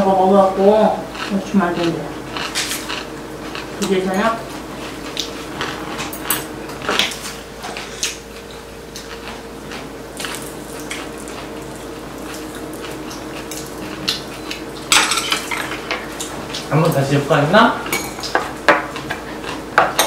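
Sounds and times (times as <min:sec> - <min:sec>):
cutlery clinking on ceramic bowls: 0:17.8 - 0:18.9.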